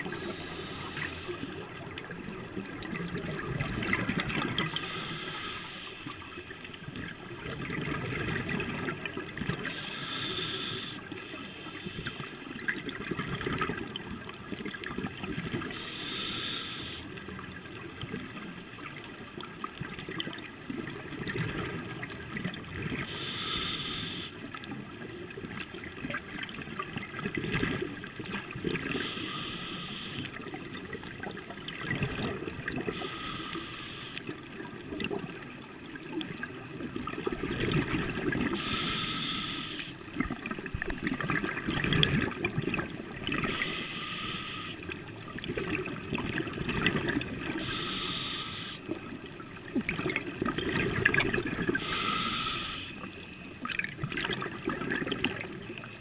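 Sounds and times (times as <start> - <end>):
regulator hissing inhale: 0.0 - 1.7, 4.6 - 6.5, 9.7 - 12.5, 15.6 - 17.2, 23.0 - 24.5, 28.8 - 30.4, 32.9 - 34.3, 38.5 - 40.2, 43.5 - 45.1, 47.4 - 49.0, 51.8 - 53.2
bubbling exhale: 0.0 - 1.9, 28.6 - 35.1, 37.0 - 53.2.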